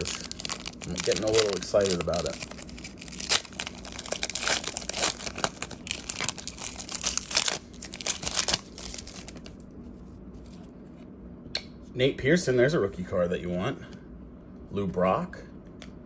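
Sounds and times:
foil wrapper tearing and crinkling: 0.0s - 9.6s.

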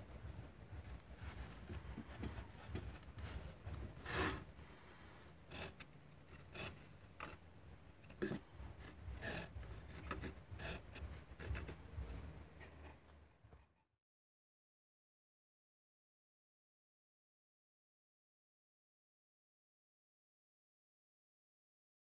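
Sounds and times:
pencil scratching on wood: 0.8s - 4.5s, 5.5s - 7.4s, 8.1s - 13.0s
wooden block sliding on wood: 1.2s - 4.6s, 5.5s - 7.4s.

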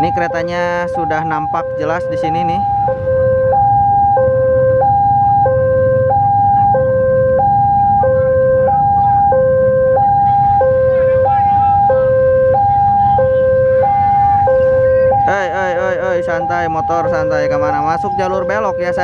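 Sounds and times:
level crossing two-tone alarm: 0.0s - 19.0s.

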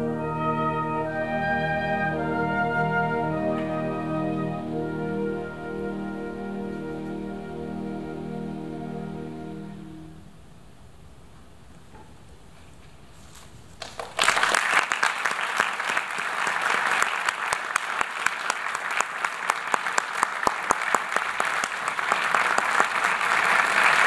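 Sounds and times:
audience applauding: 13.8s - 24.0s.

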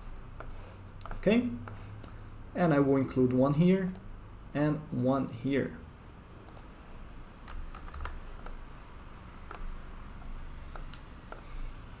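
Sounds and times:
faint low hum: 0.0s - 12.0s
computer mouse clicking: 0.4s - 2.2s, 6.5s - 6.7s, 7.5s - 8.6s, 9.4s - 9.7s, 10.7s - 11.5s.

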